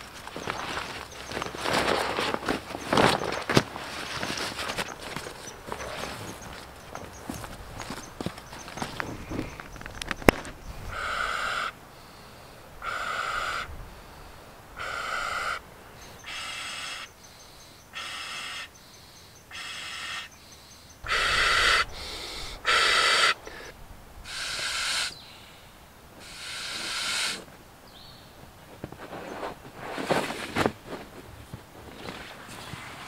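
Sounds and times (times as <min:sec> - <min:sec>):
person blowing into air mattress: 0:26.2 - 0:27.5.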